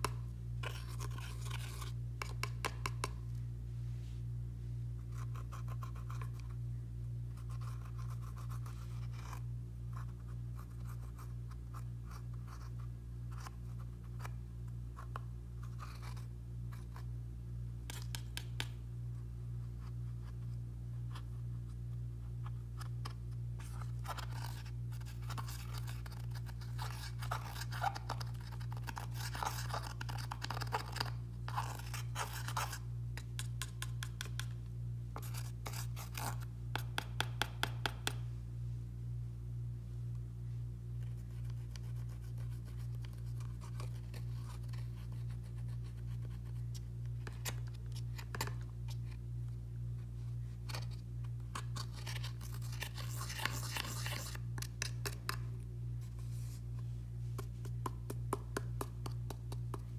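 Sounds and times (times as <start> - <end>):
plastic spatula scraping eyeshadow: 0.0 - 3.2, 22.4 - 34.6, 35.2 - 37.5, 50.7 - 55.5.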